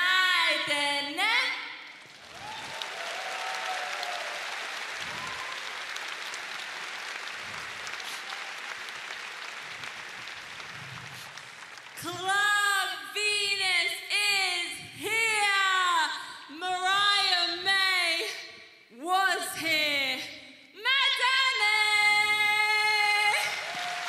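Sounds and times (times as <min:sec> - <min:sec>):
crowd applauding: 0:02.0 - 0:12.1, 0:23.2 - 0:24.0
woman singing into microphone: 0:19.0 - 0:23.5.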